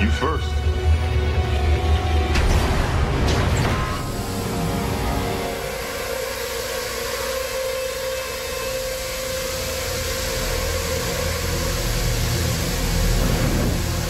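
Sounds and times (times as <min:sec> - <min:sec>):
hissing rumbling drone: 0:00.0 - 0:14.0
deep rumble: 0:08.7 - 0:14.0.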